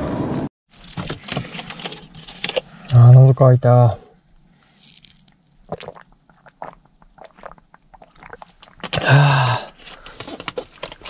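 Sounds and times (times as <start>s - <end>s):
person crunching food: 4.5s - 11.0s.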